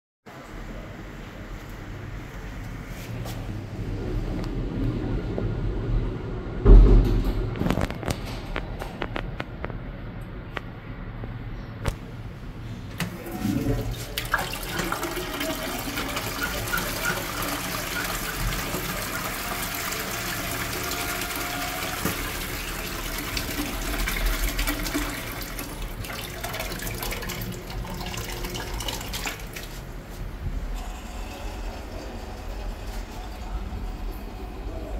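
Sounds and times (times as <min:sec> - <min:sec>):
toilet flushing: 0:12.9 - 0:34.9.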